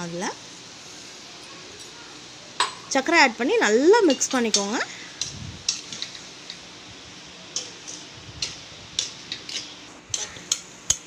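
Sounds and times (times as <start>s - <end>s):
spoon scraping a pan: 7.6s - 11.0s.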